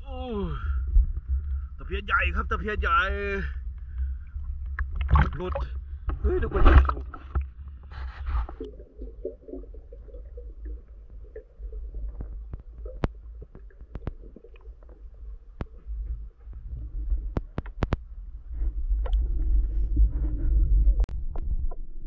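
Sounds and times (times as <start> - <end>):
low rumble of water underwater: 0.0 - 22.0
sharp underwater clicks: 3.7 - 8.8, 11.3 - 15.9, 17.3 - 18.1
water splash: 4.7 - 15.0.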